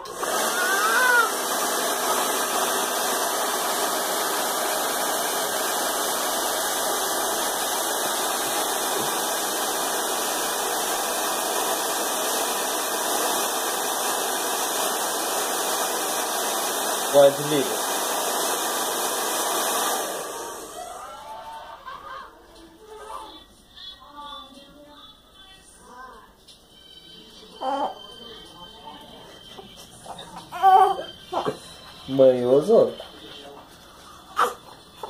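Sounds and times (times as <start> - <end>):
hair dryer running: 0.0 - 21.2, 29.6 - 33.6.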